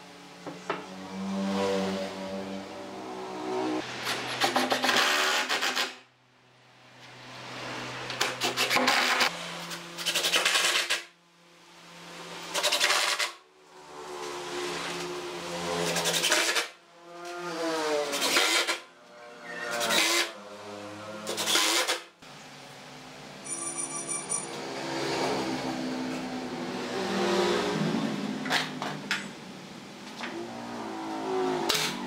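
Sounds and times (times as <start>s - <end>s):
impact driver driving screws: 4.1s - 6.0s.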